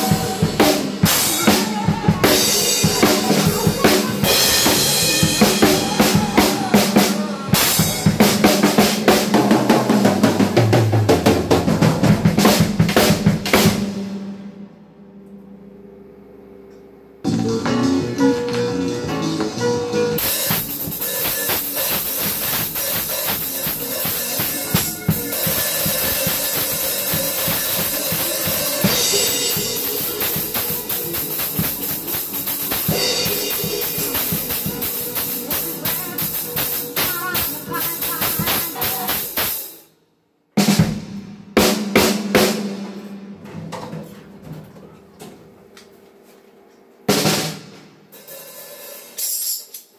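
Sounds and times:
recorded gospel music: 0:00.0 - 0:39.7
acoustic drum kit playing: 0:00.0 - 0:39.9, 0:40.5 - 0:45.8, 0:47.0 - 0:49.6.

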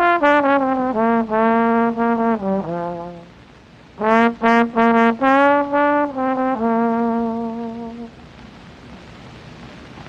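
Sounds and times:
trombone playing: 0:00.0 - 0:03.4, 0:04.0 - 0:08.2.

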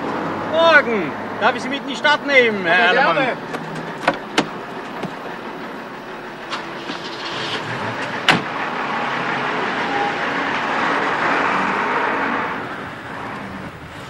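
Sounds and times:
car running noise: 0:00.0 - 0:14.0
car door slamming: 0:03.5 - 0:05.3, 0:06.5 - 0:08.6.

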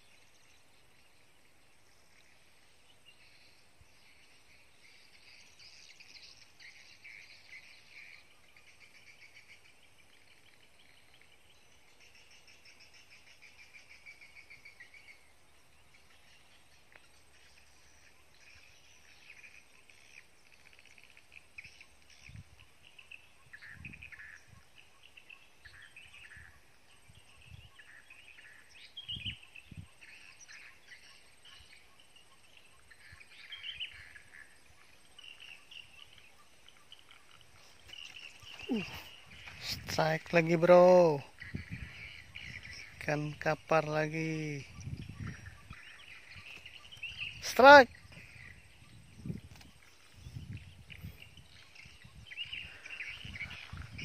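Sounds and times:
bird chirps: 0:00.0 - 0:54.0
insect trilling: 0:33.2 - 0:50.0.

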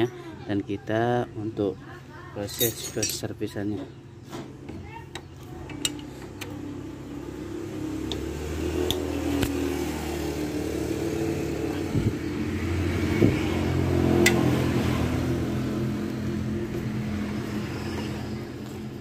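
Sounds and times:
socket wrench clinking on metal: 0:02.4 - 0:03.3
vehicle engine droning: 0:05.4 - 0:19.0.

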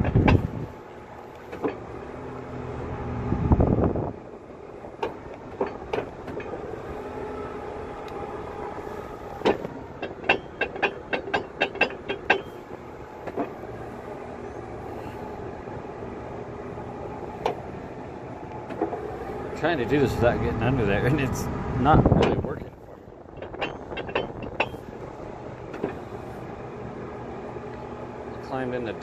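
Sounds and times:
sharp metallic knocks and clicks: 0:00.0 - 0:00.5, 0:01.5 - 0:01.9, 0:05.0 - 0:06.6, 0:09.4 - 0:13.6, 0:22.0 - 0:22.7, 0:23.3 - 0:25.0, 0:25.7 - 0:26.1
truck engine and hydraulics running: 0:00.0 - 0:29.0.

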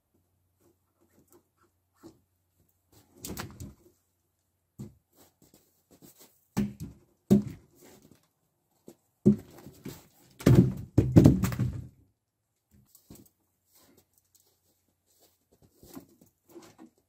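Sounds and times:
logs thudding onto pile: 0:06.6 - 0:07.7, 0:09.2 - 0:12.0
logs rolling and knocking: 0:08.9 - 0:12.0.

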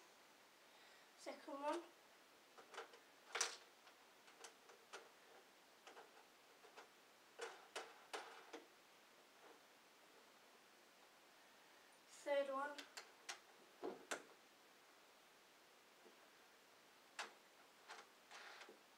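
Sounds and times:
plastic parts clicking: 0:02.6 - 0:08.7.

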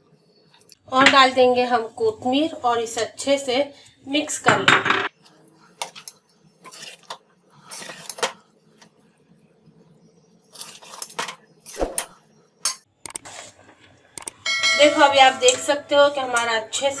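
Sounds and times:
metal spoon scraping steel pan: 0:14.5 - 0:17.0.

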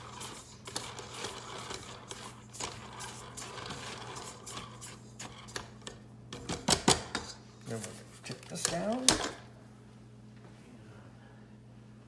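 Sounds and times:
spatula scraping in metal bowl: 0:00.0 - 0:05.7
steady low hum: 0:00.0 - 0:12.0.

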